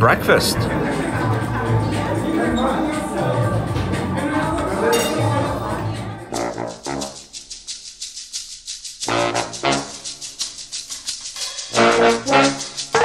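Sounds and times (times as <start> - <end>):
background music with chords: 0.0 - 6.7.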